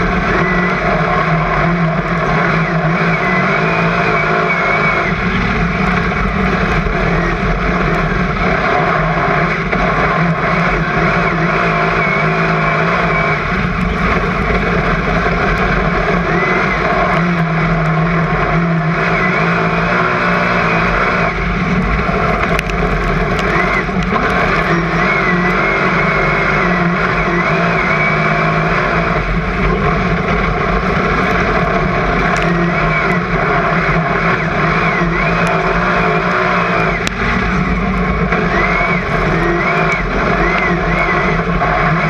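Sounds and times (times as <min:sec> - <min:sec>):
race car engine running hard: 0:00.0 - 0:42.0.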